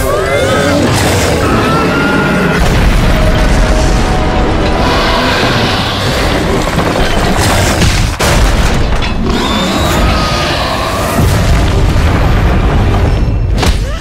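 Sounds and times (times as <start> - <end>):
music: 0.0 - 7.6
crashing rubble: 2.5 - 13.6
rumbling booms: 2.5 - 13.6.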